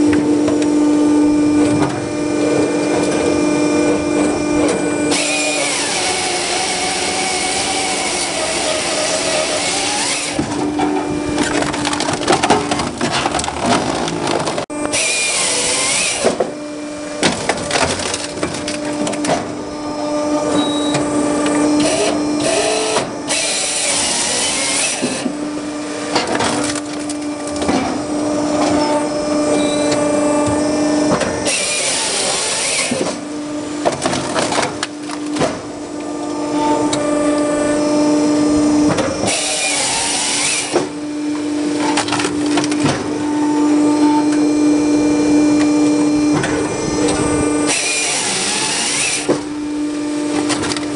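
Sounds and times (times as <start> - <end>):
hydraulic hum: 0.0 - 50.9
chainsaw cutting through log: 5.1 - 10.4, 14.9 - 16.3, 21.9 - 25.2, 31.5 - 33.0, 39.3 - 40.8, 47.7 - 49.3.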